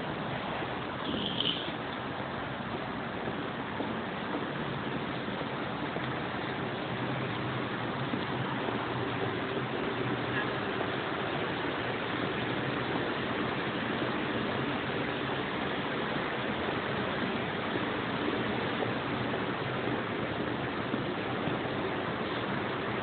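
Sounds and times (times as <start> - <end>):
steady rushing noise: 0.0 - 23.0.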